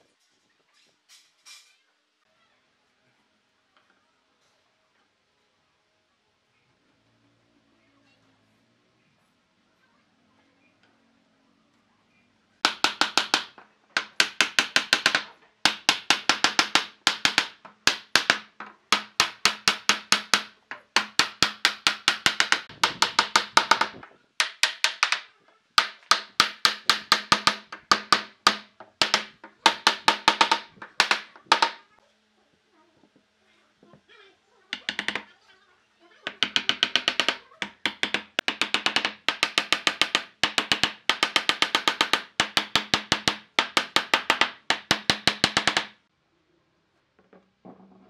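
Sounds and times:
hammer knocking on wooden block: 12.6 - 31.9, 34.8 - 35.3, 36.3 - 46.0.

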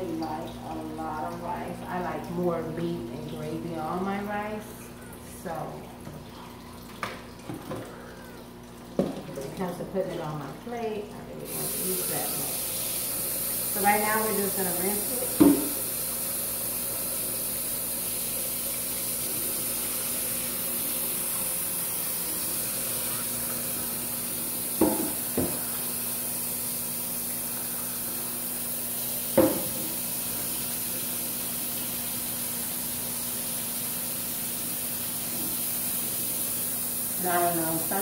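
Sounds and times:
tap water running into pot: 0.0 - 38.0
rice rinsed by hand: 11.4 - 38.0.

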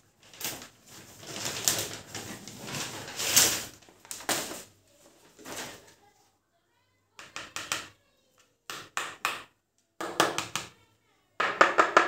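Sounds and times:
plastic wrapping crinkling: 0.1 - 6.1
cardboard box crackles: 0.2 - 4.6.

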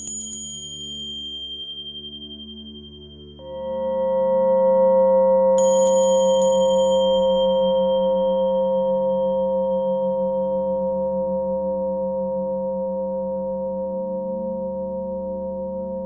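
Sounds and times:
small high-pitched metal chime: 0.0 - 11.0
singing bowl ringing: 0.0 - 11.9.

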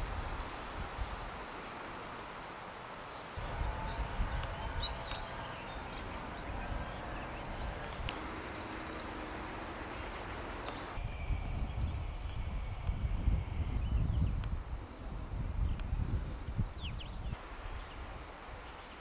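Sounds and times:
wind rumbling on microphone: 0.0 - 2.6, 3.3 - 19.0
birds calling: 3.1 - 14.4
high rapid bird trill: 8.1 - 9.2.

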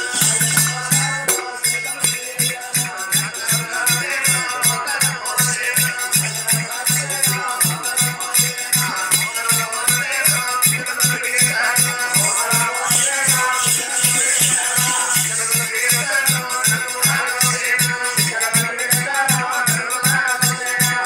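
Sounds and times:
barrel drum beating: 0.0 - 2.2
hand cymbals jingling: 0.0 - 21.0
man singing into microphone: 0.0 - 21.0.

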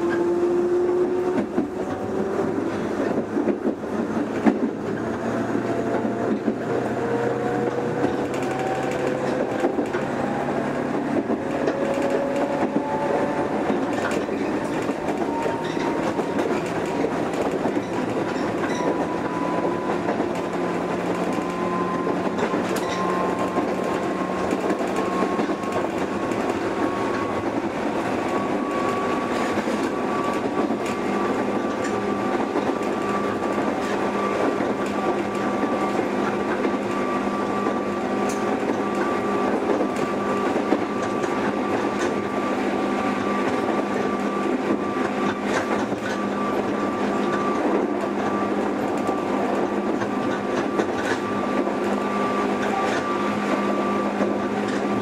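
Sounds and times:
train rumble: 0.0 - 55.0
wheel and rail clicks: 13.6 - 37.0, 43.2 - 55.0.

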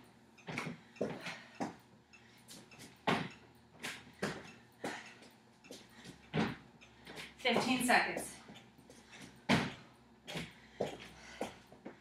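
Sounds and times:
feet thumping on plastic step: 9.5 - 12.0.

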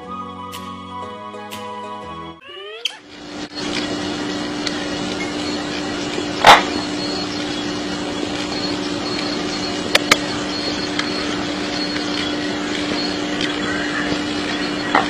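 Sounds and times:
constant low hum: 2.6 - 15.0
sharp clicks: 9.9 - 13.6.

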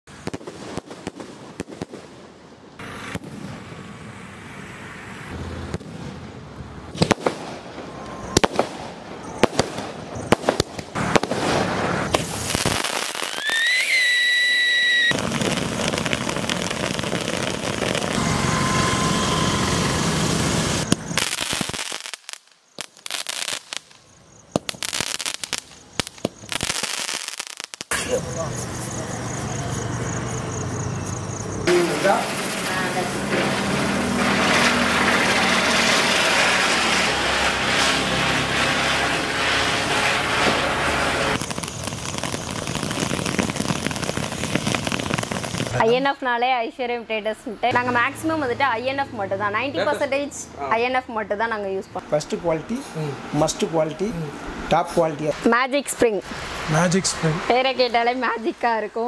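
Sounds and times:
firework bangs and crackles: 0.1 - 4.6, 5.2 - 30.6, 31.6 - 46.1, 52.2 - 58.6
rising firework whistle: 7.0 - 30.2, 31.6 - 45.8
hissing spray of sparks: 12.1 - 14.4, 31.7 - 45.8.

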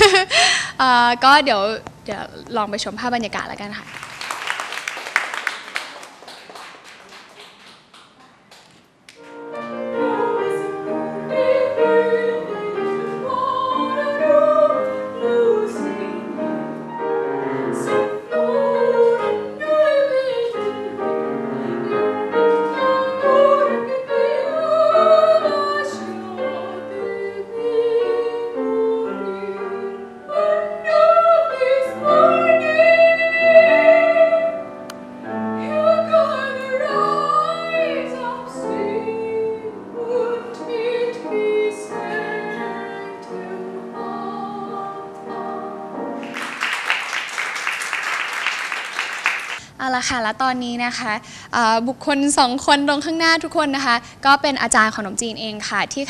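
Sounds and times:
grand piano accompaniment: 9.1 - 49.7
soprano singing operatic style: 9.6 - 46.2.

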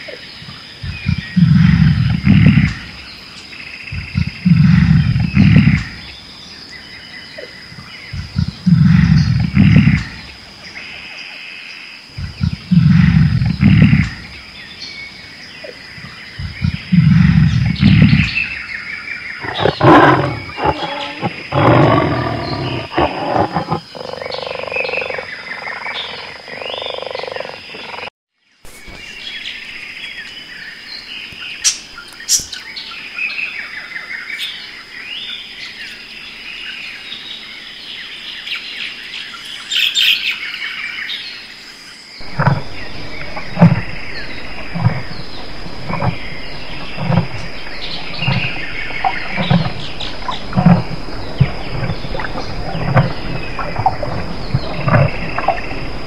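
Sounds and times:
big cat roaring and growling: 19.4 - 24.4, 42.2 - 56.0.

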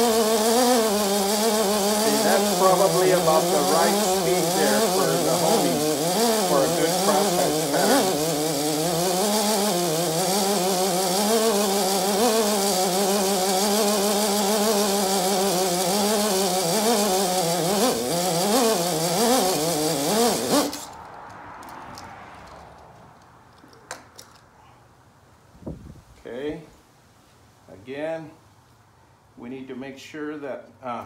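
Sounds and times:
electric drill honing cylinder: 0.0 - 21.0.

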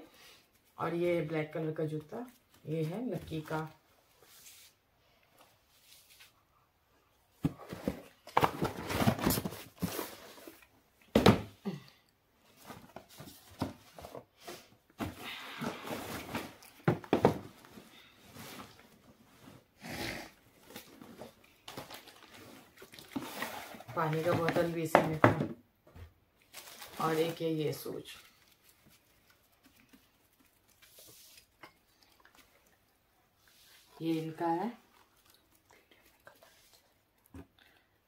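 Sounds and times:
plastic bags rustling: 20.6 - 24.7, 26.4 - 31.6.

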